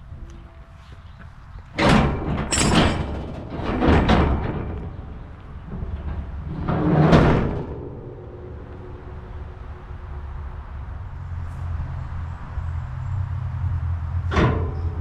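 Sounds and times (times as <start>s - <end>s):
metal scraping and clanking: 0.3s - 11.9s.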